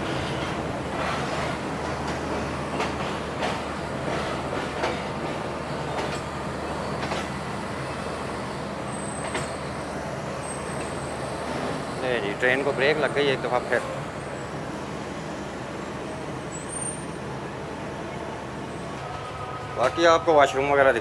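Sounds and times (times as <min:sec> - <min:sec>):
train coach low hum: 0:00.0 - 0:21.0
train brakes squealing: 0:05.7 - 0:12.0, 0:16.5 - 0:17.3.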